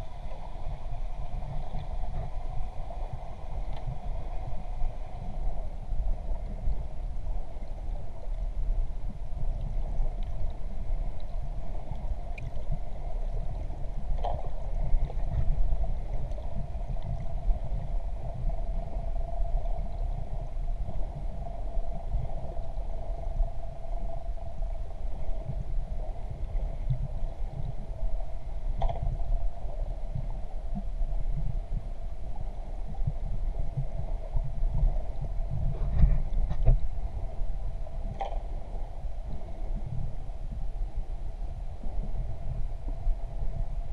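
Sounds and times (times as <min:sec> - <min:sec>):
droning hum: 0:00.0 - 0:43.9
muffled underwater rumble: 0:00.0 - 0:43.9
faint clicks: 0:00.2 - 0:04.6, 0:09.5 - 0:17.9, 0:28.7 - 0:29.2, 0:38.0 - 0:40.0.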